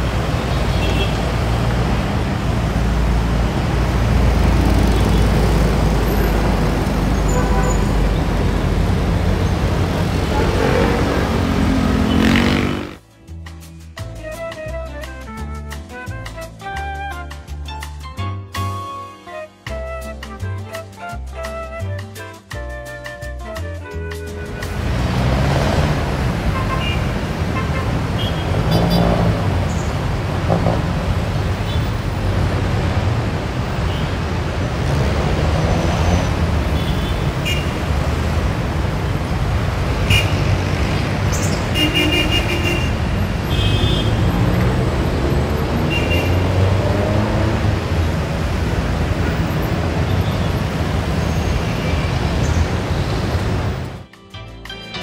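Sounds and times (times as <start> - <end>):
traffic rumble: 0.0 - 13.0, 24.5 - 54.1
vehicle horn toots: 0.7 - 1.2, 7.2 - 8.2, 26.5 - 29.3, 36.8 - 37.9, 40.0 - 40.6, 41.7 - 44.6, 45.8 - 46.7.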